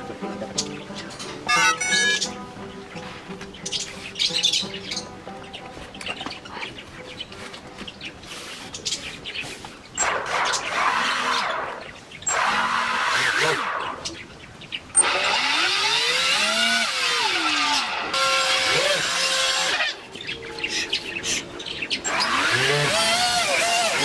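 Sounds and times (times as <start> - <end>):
small motors spinning propellers: 10.0 - 14.0, 15.0 - 20.0, 22.0 - 24.0.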